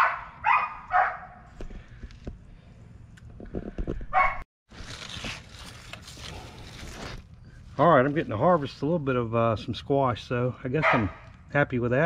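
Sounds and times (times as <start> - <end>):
dog barking: 0.0 - 1.5, 4.2 - 4.4, 10.8 - 11.3.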